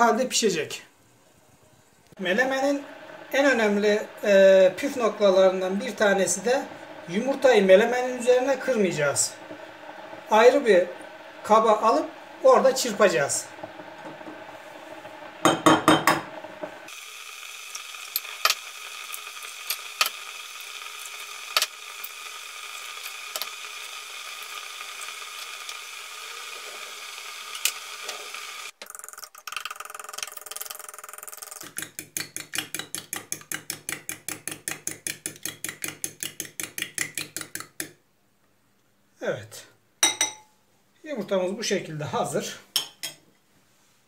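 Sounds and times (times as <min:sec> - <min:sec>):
faint steady hum: 0:00.1 - 0:28.7
fork whisking eggs in glass bowl: 0:31.4 - 0:37.9.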